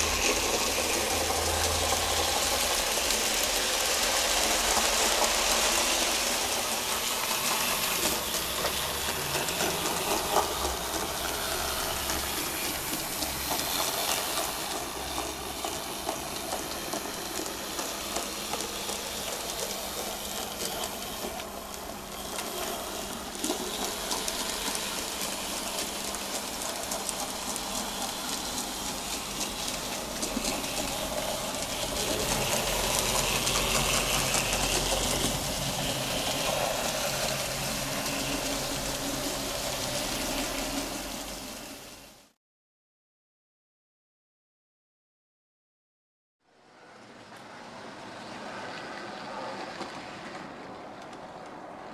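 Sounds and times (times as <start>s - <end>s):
model train running on track: 0.0s - 42.4s, 46.5s - 51.9s.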